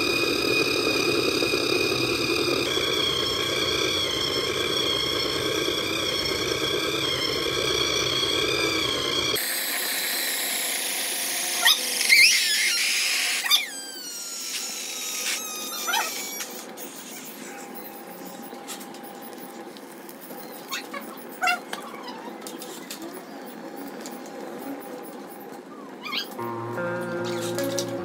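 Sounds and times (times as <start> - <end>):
electric motor whine: 0.0 - 16.8, 26.4 - 28.0.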